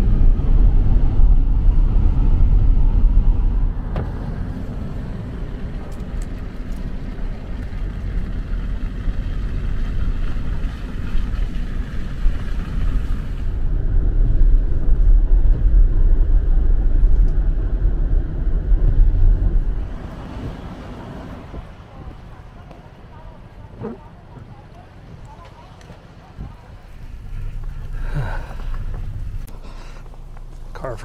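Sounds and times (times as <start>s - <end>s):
vehicle engine and tyre rumble: 0.0s - 31.0s.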